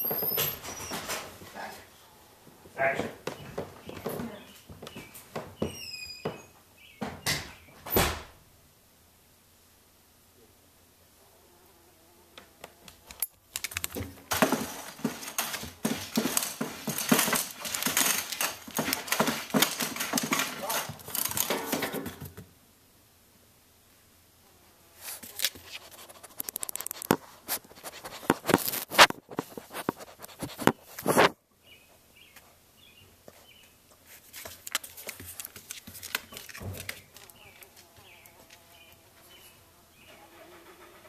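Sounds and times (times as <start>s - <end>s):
puppy claws scratching on wood: 13.1s - 21.8s, 25.0s - 31.4s, 34.0s - 38.6s.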